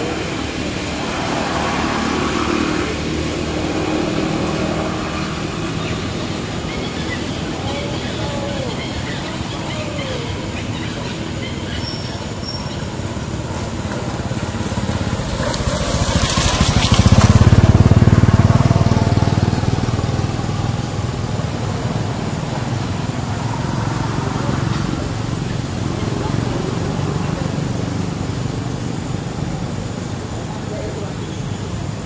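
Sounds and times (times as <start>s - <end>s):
vehicle engine passing: 0.0s - 32.0s.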